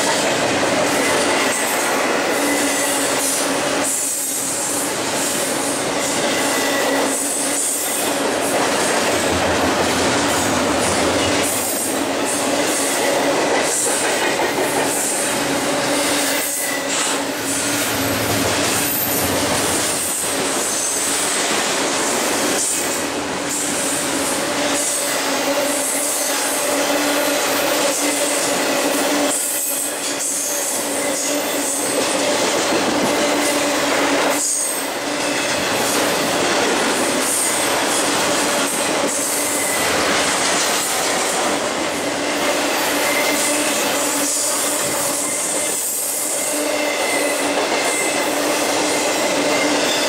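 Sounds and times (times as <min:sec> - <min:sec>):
train wheels rumbling on rails: 0:00.0 - 0:50.0
high wheel squeal: 0:02.2 - 0:04.3, 0:06.0 - 0:08.1, 0:39.2 - 0:40.2, 0:45.1 - 0:50.0.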